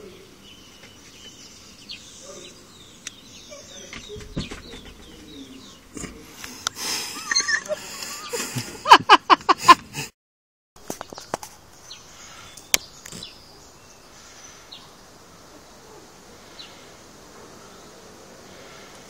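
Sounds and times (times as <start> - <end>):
bird chirps: 0.0 - 6.0, 11.0 - 15.0.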